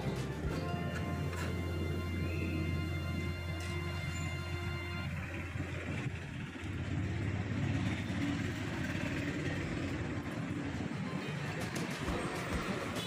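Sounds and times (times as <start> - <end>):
background music: 0.0 - 5.6
traffic passing: 0.0 - 13.0.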